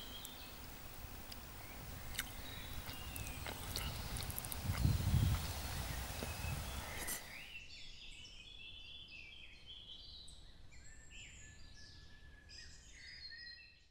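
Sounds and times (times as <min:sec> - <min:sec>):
rustling: 0:00.0 - 0:07.4
songbirds singing: 0:00.0 - 0:13.8.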